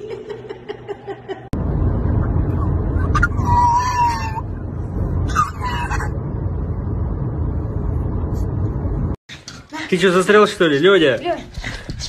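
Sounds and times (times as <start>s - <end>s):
dog howling: 3.0s - 4.6s.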